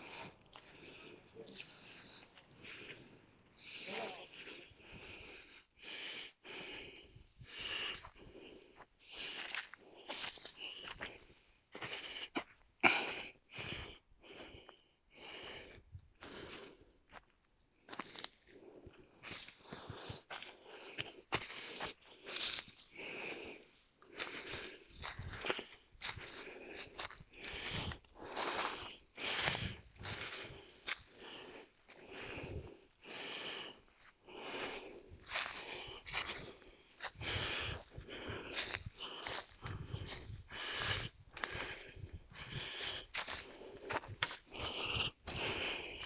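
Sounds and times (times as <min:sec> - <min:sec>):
footsteps on dry leaves and twigs: 0:00.0 - 0:05.3, 0:09.1 - 0:12.6, 0:21.3 - 0:23.6, 0:24.2 - 0:46.0
footsteps crunching through leaves: 0:25.0 - 0:31.1, 0:35.2 - 0:41.8, 0:42.4 - 0:46.0.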